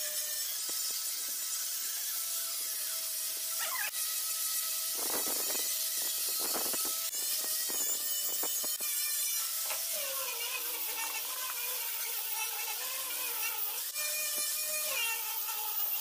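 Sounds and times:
angle grinder motor whine: 0:00.0 - 0:16.0
sanding pad scrubbing wood: 0:09.6 - 0:16.0.

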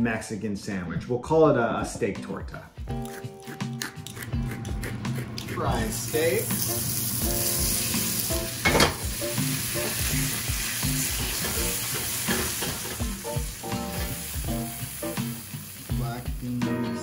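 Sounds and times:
steak sizzling in oil: 0:05.6 - 0:17.0.

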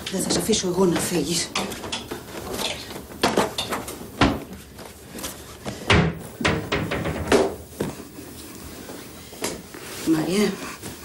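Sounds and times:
wooden hangers knocking: 0:05.9 - 0:07.7.

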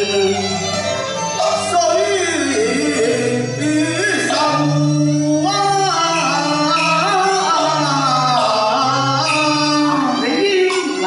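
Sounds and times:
man singing: 0:00.0 - 0:11.0
small instrumental ensemble: 0:00.0 - 0:11.0.

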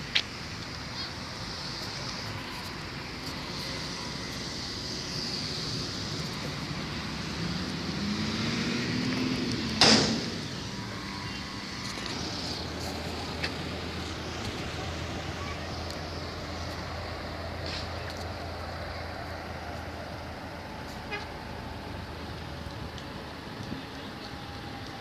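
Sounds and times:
car passing: 0:00.0 - 0:25.0
sharp knock: 0:09.8 - 0:10.3
rain falling: 0:10.6 - 0:25.0.

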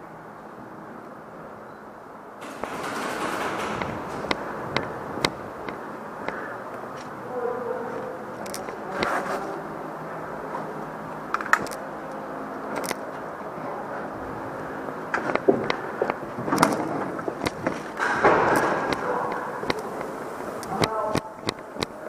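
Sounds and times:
steady buzzing hum: 0:00.0 - 0:22.0
airsoft guns firing: 0:02.4 - 0:05.4, 0:18.0 - 0:19.2.

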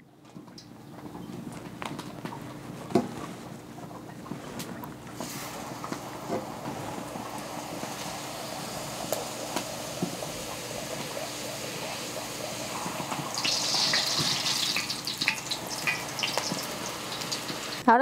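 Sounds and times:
tortilla sizzling in hot oil: 0:05.2 - 0:17.8.

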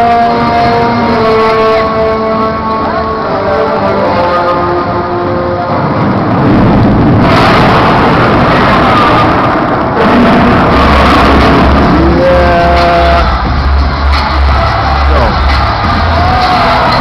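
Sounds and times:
arena crowd roar: 0:00.0 - 0:17.0
deep bass rumble: 0:04.8 - 0:17.0
booming pa sound: 0:05.8 - 0:17.0.

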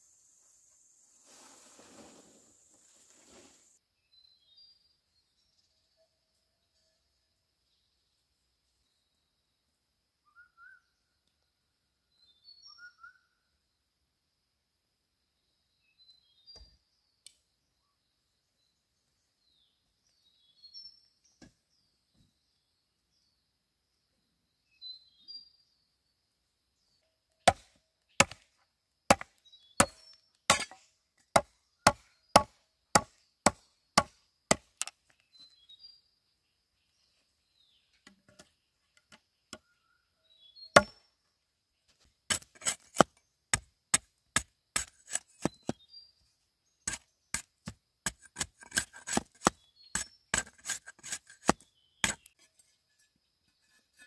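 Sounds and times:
blade chopping bamboo: 0:27.4 - 0:28.4, 0:29.1 - 0:34.9, 0:40.8 - 0:41.0, 0:42.3 - 0:45.8, 0:46.9 - 0:52.3.

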